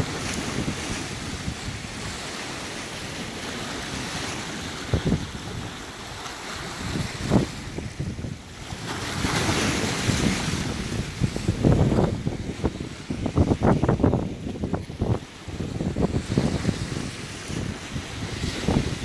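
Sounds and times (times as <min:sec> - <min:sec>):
waves washing over rocks: 0:00.0 - 0:19.0
wind buffeting microphone: 0:00.0 - 0:19.0.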